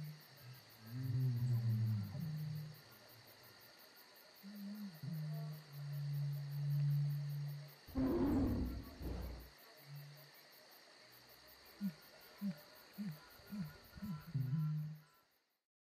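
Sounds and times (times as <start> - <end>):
insects chirping: 0.0 - 15.6
low drawn-out animal call: 0.8 - 2.8, 4.6 - 9.5, 13.0 - 15.2
loud animal roar: 7.9 - 9.5
short low animal calls: 7.9 - 9.5.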